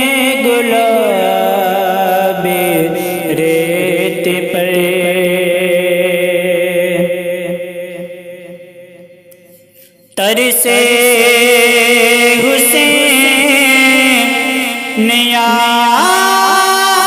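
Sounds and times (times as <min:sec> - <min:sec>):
man singing melismatic line: 0:10.2 - 0:17.0.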